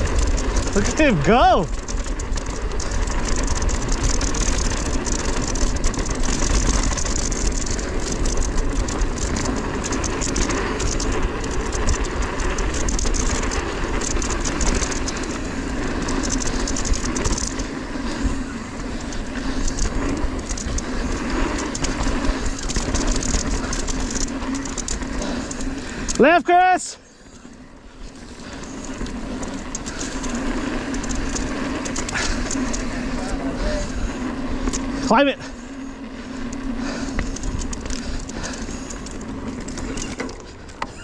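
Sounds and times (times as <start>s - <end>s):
wind rumble on microphone: 0.0s - 26.2s
bike knocks and rattles: 0.0s - 26.3s, 27.3s - 41.0s
bike tyres on dirt and gravel: 0.0s - 41.0s.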